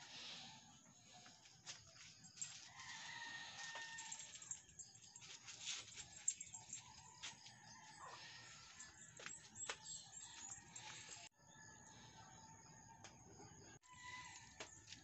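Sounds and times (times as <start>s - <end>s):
distant rooster crowing: 2.6s - 4.6s, 6.9s - 9.0s
footsteps in rubber slippers: 5.1s - 11.2s, 14.6s - 15.0s.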